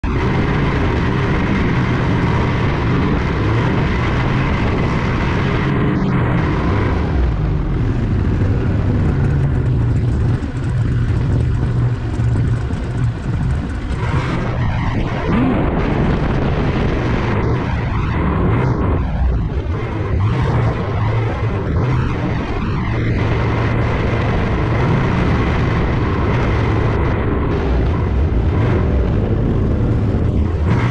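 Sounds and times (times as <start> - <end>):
road noise: 0.0 - 30.9
vehicle engine drone: 0.0 - 30.9.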